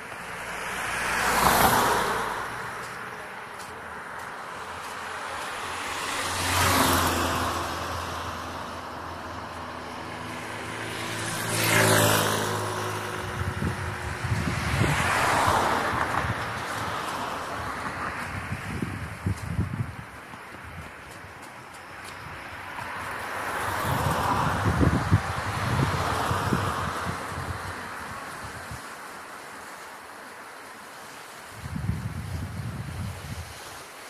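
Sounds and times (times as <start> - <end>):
cars passing: 0.0 - 34.0
wind buffeting microphone: 6.4 - 29.1, 31.5 - 33.8.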